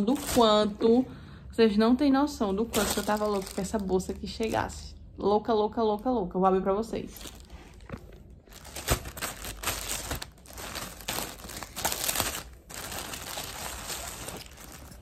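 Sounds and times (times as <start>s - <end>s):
plastic bag crinkling: 0.0s - 0.8s, 2.6s - 4.8s, 7.1s - 15.0s.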